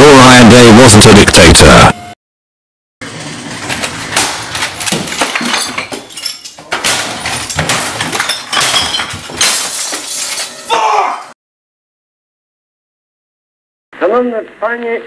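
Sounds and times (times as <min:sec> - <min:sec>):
objects crashing and clattering: 0:03.2 - 0:10.6
glass bottles clinking and breaking: 0:04.5 - 0:10.6.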